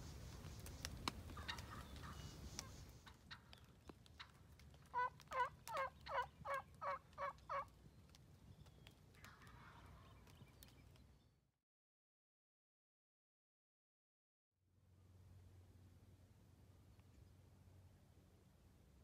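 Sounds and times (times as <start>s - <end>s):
wild turkey yelping: 1.3s - 3.6s, 4.9s - 7.7s.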